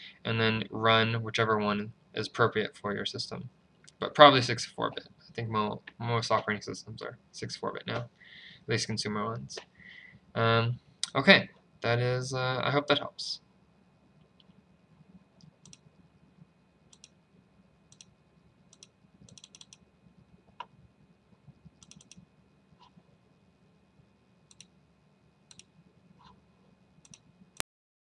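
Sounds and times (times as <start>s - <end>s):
low steady hum: 0.0s - 27.6s
computer mouse clicks: 15.4s - 16.0s, 16.9s - 17.2s, 17.9s - 19.8s, 21.5s - 23.0s, 24.5s - 24.8s, 25.5s - 26.4s, 27.0s - 27.3s.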